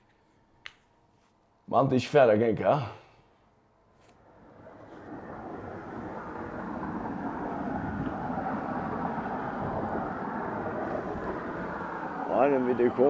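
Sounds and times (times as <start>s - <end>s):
motor vehicle driving rumble: 4.2s - 13.0s.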